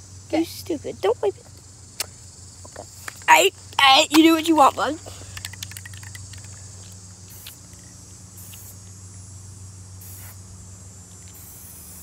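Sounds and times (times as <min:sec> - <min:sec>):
steady low hum: 0:00.0 - 0:12.0
spray paint can hissing: 0:07.3 - 0:07.6, 0:08.4 - 0:08.8, 0:10.0 - 0:10.4, 0:11.2 - 0:12.0.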